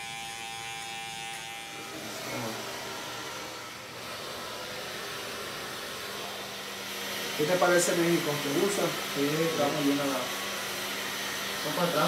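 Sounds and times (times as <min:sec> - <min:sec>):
electric hair clippers running: 0:00.0 - 0:12.0.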